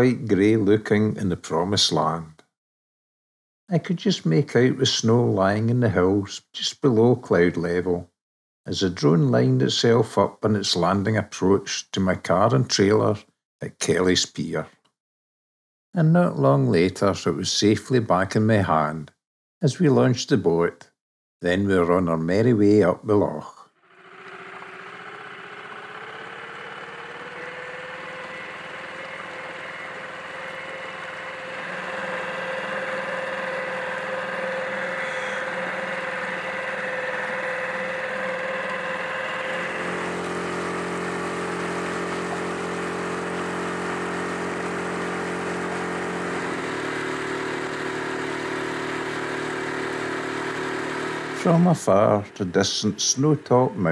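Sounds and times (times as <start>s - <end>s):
boat outboard motor running: 23.8s - 53.9s.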